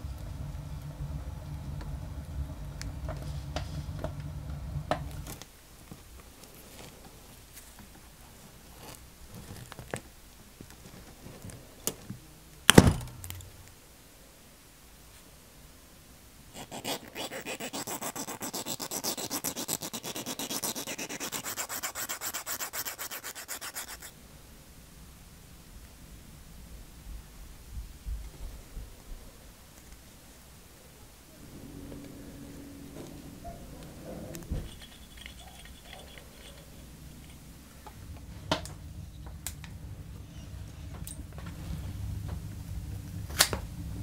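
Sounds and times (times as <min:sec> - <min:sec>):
fast even scraping: 0:00.0 - 0:05.4, 0:16.6 - 0:24.1, 0:31.4 - 0:38.4
low hum: 0:00.0 - 0:05.4, 0:31.1 - 0:44.0.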